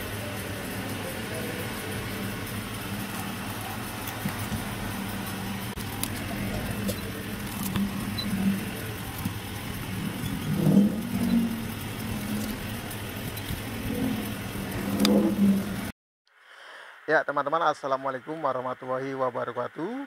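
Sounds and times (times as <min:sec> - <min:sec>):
motor vehicles running: 0:00.0 - 0:15.9.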